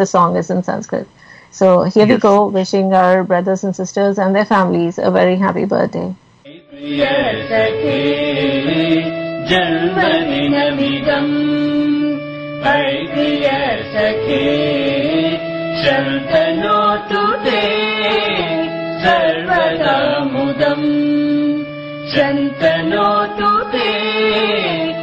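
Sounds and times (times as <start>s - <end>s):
held drone tones: 2.0s - 2.6s
song with wavering melody: 6.5s - 25.0s.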